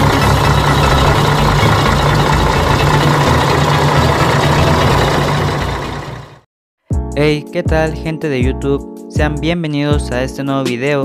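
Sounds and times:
bus engine running: 0.0s - 6.4s.

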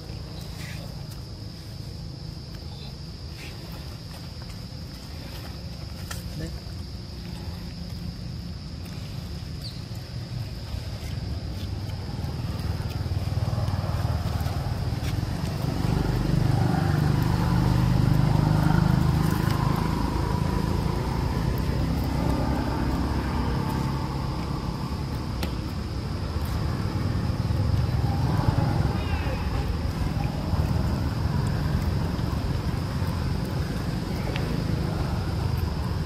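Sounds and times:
high insect buzz: 0.0s - 36.0s
vehicle engine running: 10.1s - 36.0s.

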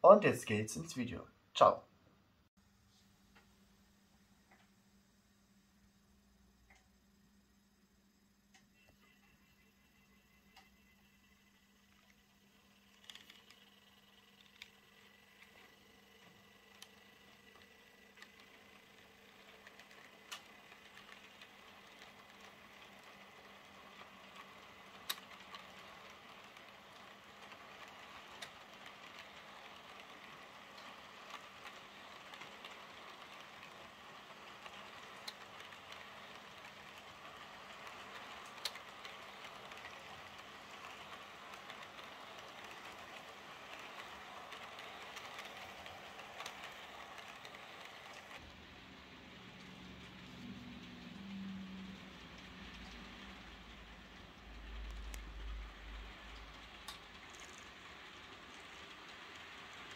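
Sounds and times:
model train wheels hissing on rails: 8.8s - 59.9s
wheels clicking over rail joints: 12.8s - 59.9s.

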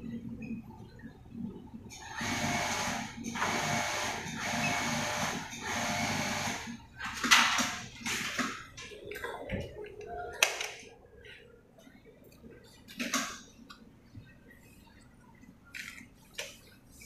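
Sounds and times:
sewing machine running: 2.0s - 6.8s.

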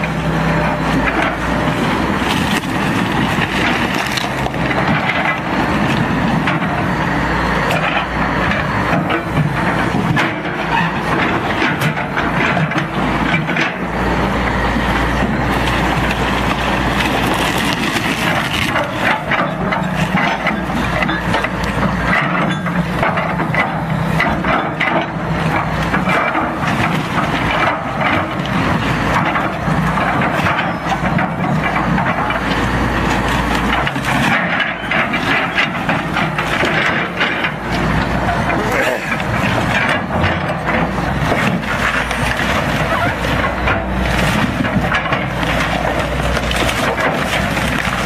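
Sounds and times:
excavator diesel engine: 0.0s - 48.0s
hull cracking and crunching: 0.9s - 6.8s, 14.8s - 22.2s, 25.3s - 48.0s.

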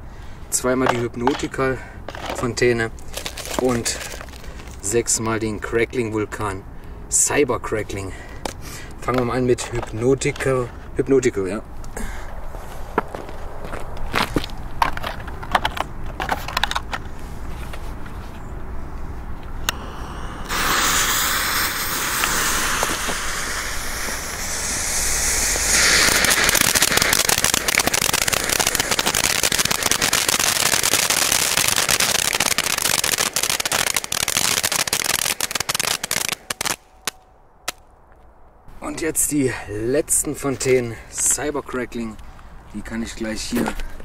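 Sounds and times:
dense crackling: 0.6s - 5.0s, 19.7s - 37.9s
fountain firework sparks hissing: 19.7s - 36.8s.

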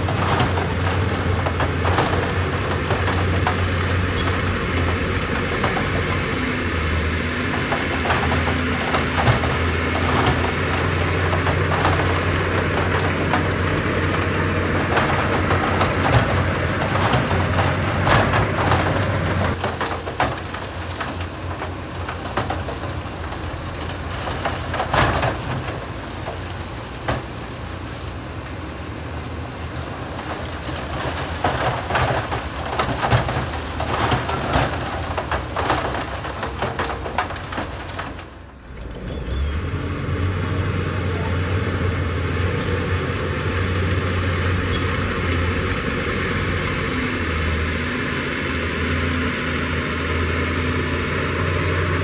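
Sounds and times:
metal clanks and knocks: 0.0s - 28.6s, 29.6s - 38.4s
diesel engine drone: 0.0s - 52.0s.

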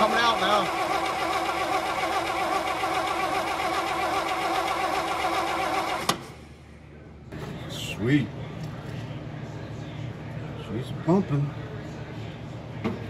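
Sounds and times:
engine cranking by starter: 0.0s - 6.3s.

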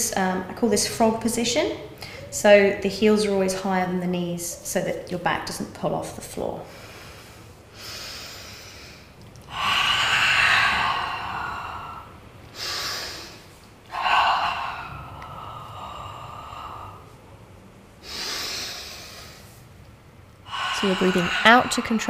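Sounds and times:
woman breathing forcefully: 6.6s - 22.0s.

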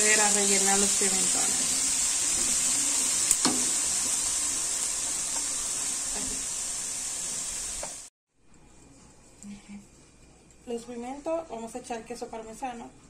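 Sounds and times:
vegetables sizzling in oil: 0.0s - 8.1s.

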